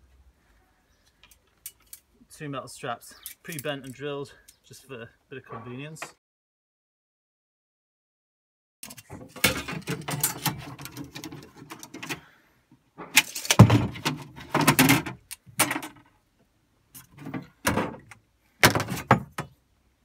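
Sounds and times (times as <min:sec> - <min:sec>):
metal straps clattering on plastic: 0:01.2 - 0:02.1, 0:08.8 - 0:12.3, 0:13.0 - 0:16.1, 0:16.9 - 0:19.5
knocks and thumps: 0:13.0 - 0:15.9, 0:17.2 - 0:19.6.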